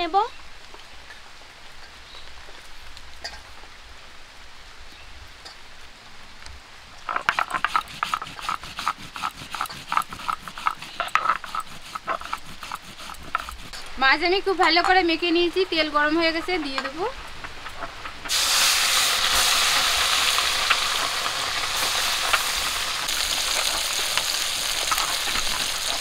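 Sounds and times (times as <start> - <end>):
stone scraping over seeds: 7.1 - 13.9.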